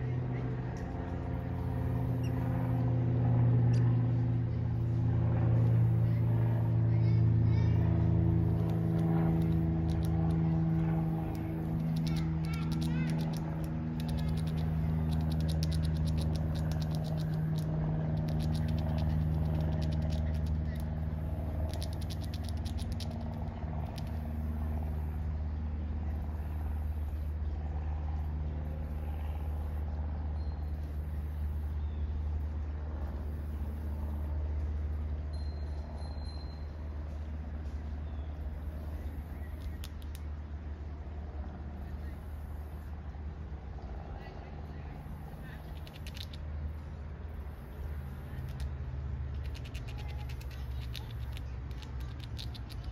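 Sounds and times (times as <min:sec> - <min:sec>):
road traffic rumble: 0:00.0 - 0:52.9
squirrel gnawing nut shell: 0:08.4 - 0:25.0, 0:38.6 - 0:40.4, 0:45.0 - 0:46.7, 0:47.6 - 0:52.9.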